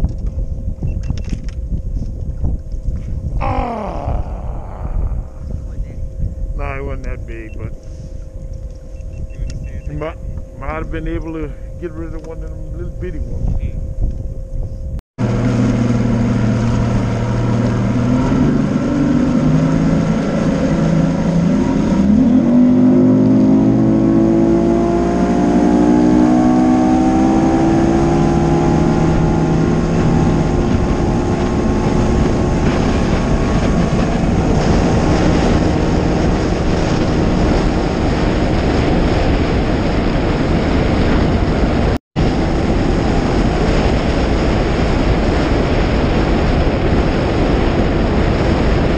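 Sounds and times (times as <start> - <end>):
rush of wind and water: 0.0 - 7.7, 15.2 - 48.9
outboard motor revving: 15.2 - 48.9.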